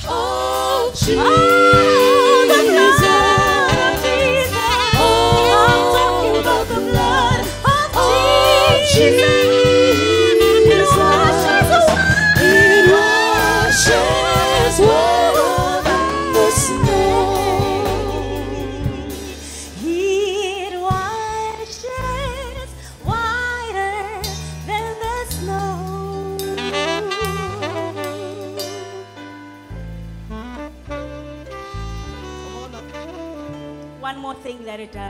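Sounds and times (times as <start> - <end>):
vocal group singing gospel: 0.0 - 21.2
drums: 0.0 - 35.0
saxophone: 0.9 - 22.4, 25.6 - 34.6.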